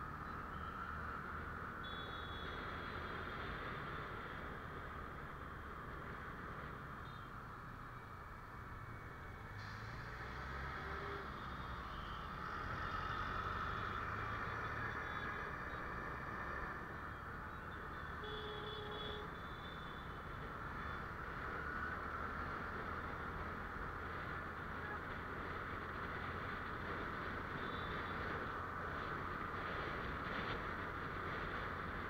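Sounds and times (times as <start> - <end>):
faint beep: 0.0 - 2.9, 11.7 - 13.2
motorcycle road noise: 0.0 - 32.0.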